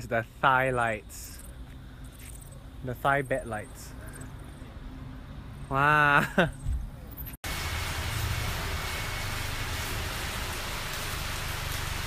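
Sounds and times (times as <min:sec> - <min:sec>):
steady rushing hiss: 0:07.4 - 0:12.0.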